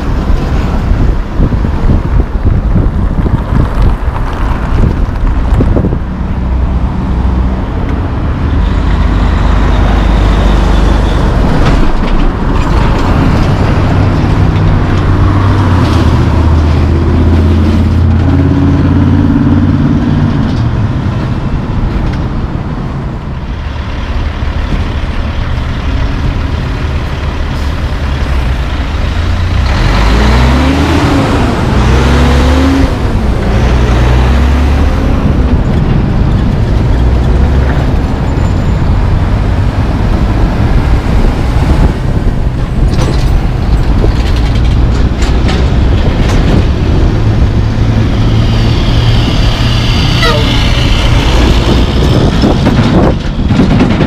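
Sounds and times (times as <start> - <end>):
passing cars: 0.0 - 54.0
truck engine pulling away: 0.0 - 54.0.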